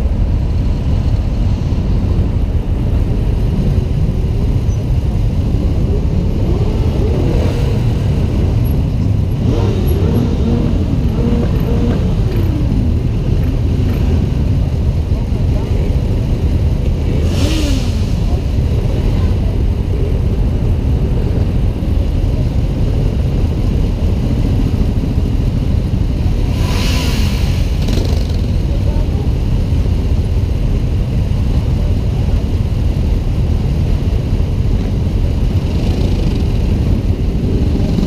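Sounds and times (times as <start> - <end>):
motorcycles idling: 0.0 - 26.6
engine revving: 9.3 - 14.3.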